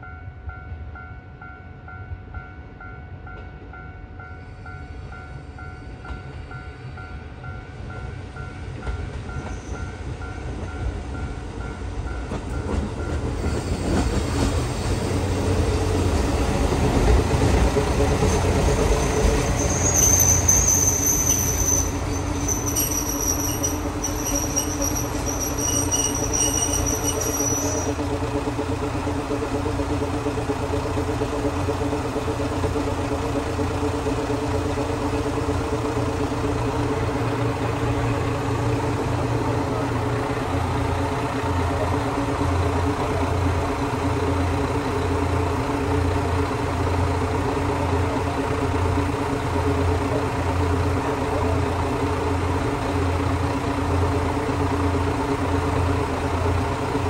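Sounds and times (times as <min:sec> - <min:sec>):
diesel railcar engine: 0:00.0 - 0:57.0
train wheels on rails: 0:03.2 - 0:57.0
high brake squeal: 0:13.4 - 0:15.3, 0:18.2 - 0:28.0.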